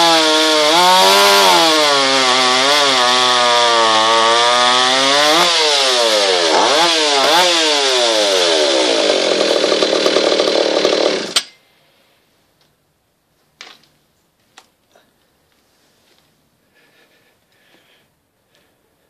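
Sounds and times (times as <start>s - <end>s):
chainsaw cutting log: 0.0s - 11.5s.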